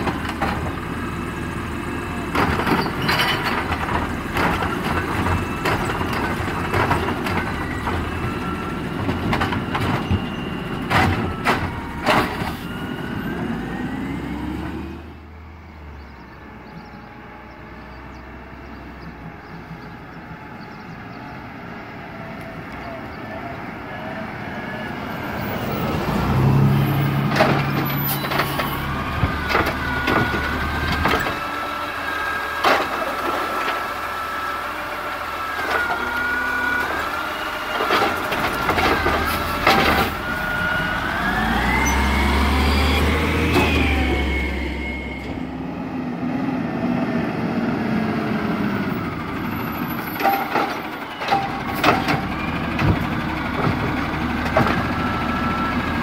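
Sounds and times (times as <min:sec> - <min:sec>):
diesel engine revving: 0:00.0 - 0:56.0
metal clanks and bangs: 0:50.0 - 0:54.9.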